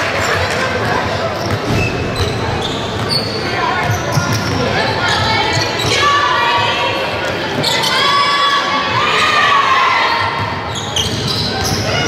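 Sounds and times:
crowd shouting and cheering: 0:00.0 - 0:12.0.

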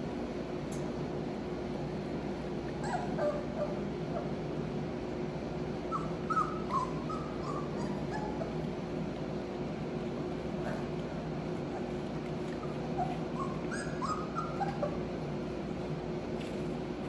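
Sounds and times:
puppies whimpering: 0:02.7 - 0:04.4, 0:05.7 - 0:08.9, 0:10.6 - 0:15.5.

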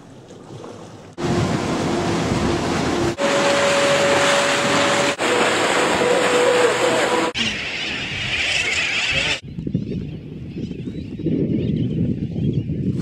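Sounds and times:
water rushing past boat: 0:00.0 - 0:07.8
boat engine hum: 0:00.0 - 0:09.4
wind noise: 0:07.4 - 0:13.0.

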